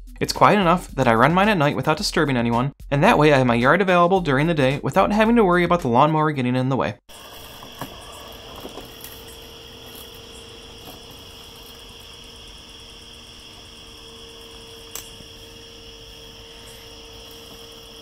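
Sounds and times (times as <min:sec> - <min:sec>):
crickets chirping: 0:07.1 - 0:18.0
robotic lawn mower humming: 0:07.1 - 0:18.0.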